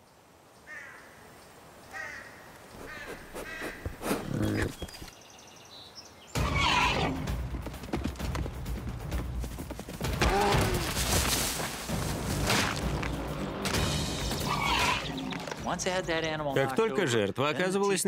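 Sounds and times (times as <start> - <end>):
animal calls: 1.9 - 5.1, 6.3 - 7.3, 14.4 - 15.4
animal running and grunting: 2.7 - 5.2, 6.4 - 13.2.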